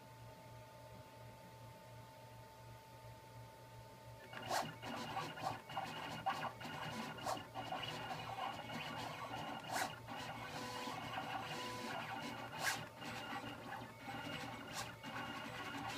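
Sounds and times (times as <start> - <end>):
sharp machine clicks: 4.2 - 15.9
stepper motors whirring: 4.2 - 15.9.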